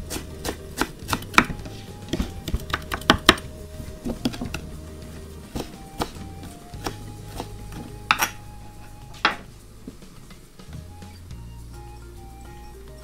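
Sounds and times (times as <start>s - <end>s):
knife chopping on wooden board: 0.1s - 3.4s.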